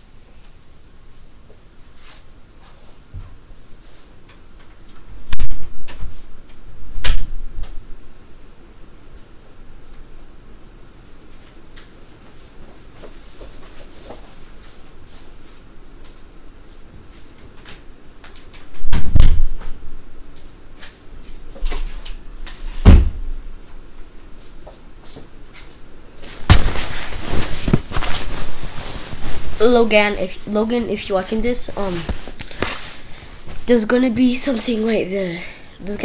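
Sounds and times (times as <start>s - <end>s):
rustling and handling noise: 11.2s - 22.8s, 23.6s - 36.0s
heavy thuds: 26.4s - 29.6s.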